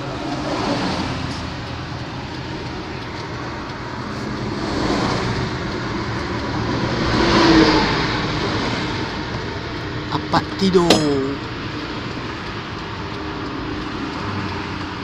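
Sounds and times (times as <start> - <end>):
road traffic rumble and hiss: 0.0 - 15.0.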